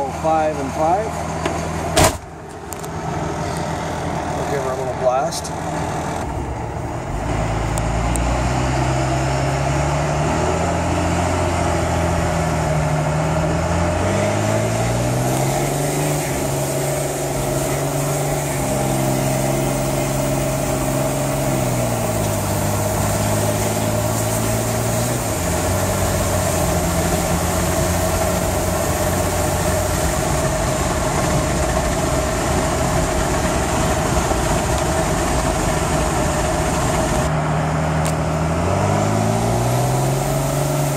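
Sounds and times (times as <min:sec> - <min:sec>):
turbo-diesel engine revving: 0:00.0 - 0:40.9.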